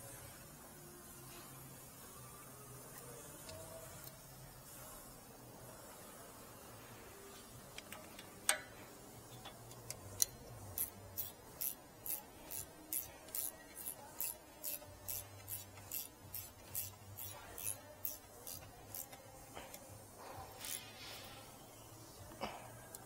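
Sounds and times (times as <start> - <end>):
ratcheting wrench clicking: 7.7 - 19.8, 20.5 - 21.0.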